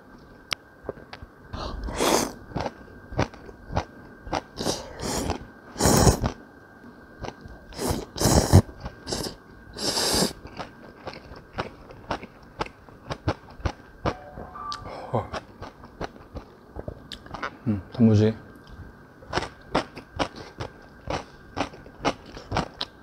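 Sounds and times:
slurping noodles: 1.8 - 2.4, 4.5 - 6.4, 7.8 - 10.4
chewing: 7.2 - 13.9, 15.2 - 17.6, 18.6 - 23.0.

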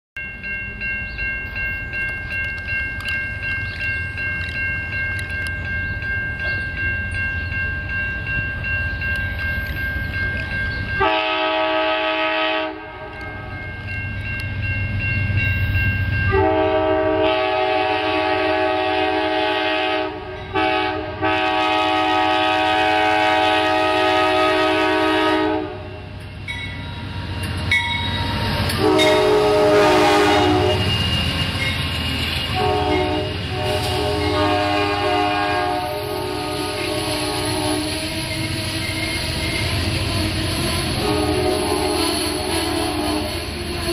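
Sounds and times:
low train rumble: 0.2 - 43.9
train air horn blasts: 11.0 - 13.4, 16.3 - 26.1, 28.8 - 31.1, 32.5 - 38.4, 39.9 - 43.9.

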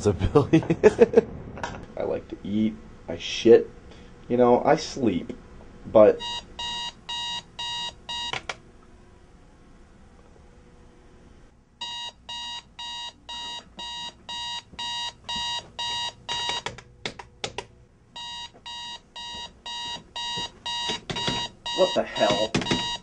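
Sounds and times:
alarm clock beeping: 6.2 - 8.3, 11.8 - 16.6, 18.2 - 23.0
sharp knocks: 20.3 - 21.5, 22.2 - 23.0.

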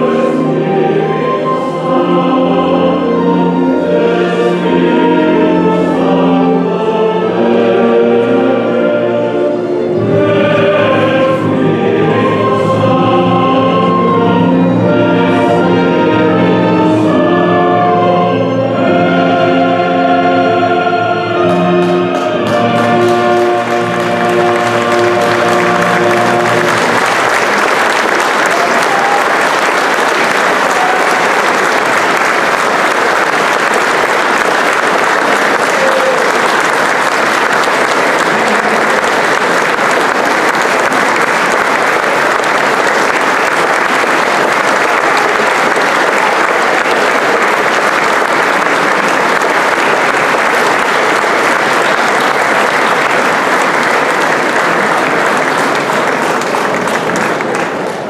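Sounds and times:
crowd applauding: 21.5 - 58.0.

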